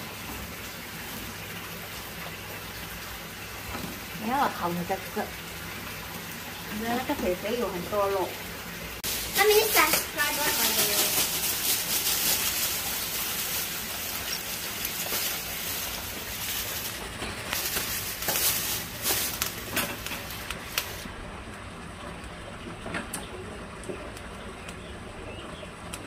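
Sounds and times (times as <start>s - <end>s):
charcoal lumps clinking: 9.0s - 21.1s
plastic bag rustling: 9.0s - 21.1s.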